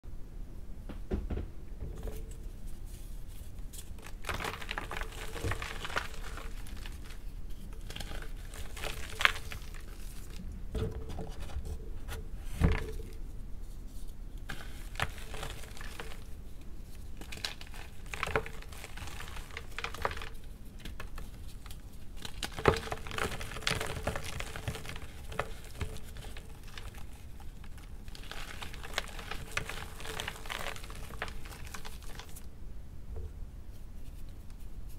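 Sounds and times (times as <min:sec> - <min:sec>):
hands crushing chalk blocks: 0:02.0 - 0:10.4, 0:17.2 - 0:32.5.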